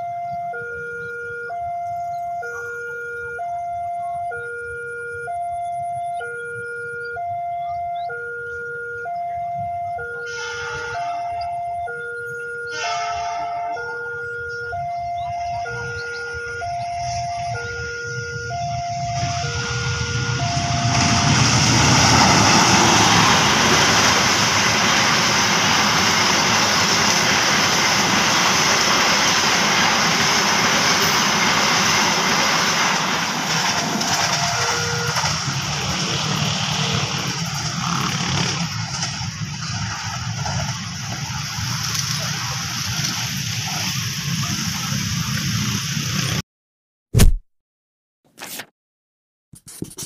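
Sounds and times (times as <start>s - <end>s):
train wheels rumbling on rails: 19.0s - 46.3s.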